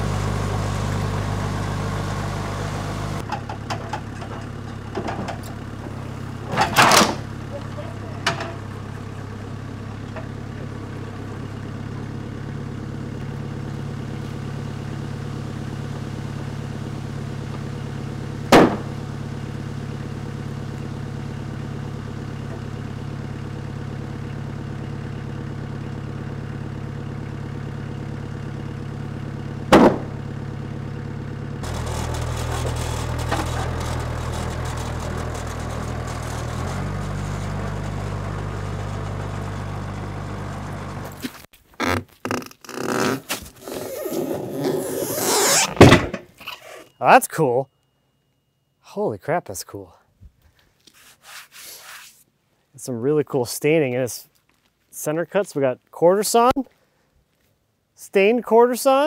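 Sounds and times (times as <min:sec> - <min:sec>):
loader engine idling: 0:00.0 - 0:41.5
sharp knocks: 0:18.5 - 0:19.0, 0:29.7 - 0:30.1.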